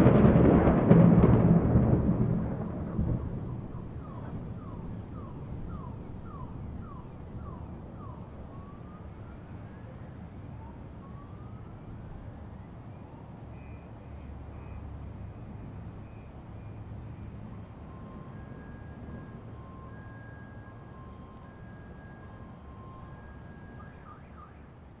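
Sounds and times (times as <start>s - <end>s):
thunder rolling: 0.0s - 9.4s
distant siren: 0.0s - 25.0s
low city rumble: 0.0s - 25.0s.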